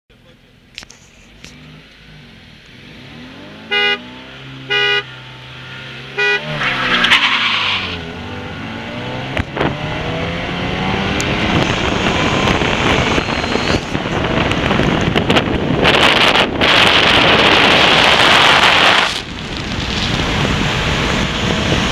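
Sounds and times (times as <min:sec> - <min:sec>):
car engines accelerating: 0:00.1 - 0:21.9
car horn toots: 0:03.5 - 0:07.4
wind rushing over microphone: 0:07.9 - 0:21.9.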